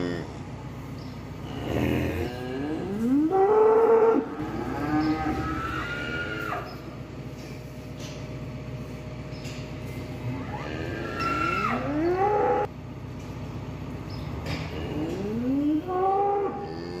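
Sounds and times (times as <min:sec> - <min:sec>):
cow mooing: 0:00.0 - 0:00.4, 0:01.4 - 0:06.8, 0:10.3 - 0:12.7, 0:14.6 - 0:17.0
steady low hum: 0:00.0 - 0:17.0.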